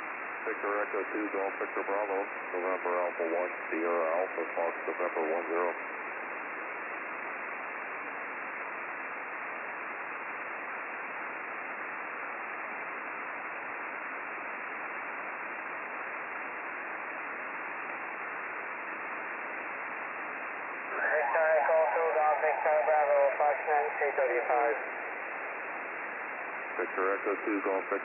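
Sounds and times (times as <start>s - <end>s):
radio static hiss: 0.0s - 28.0s.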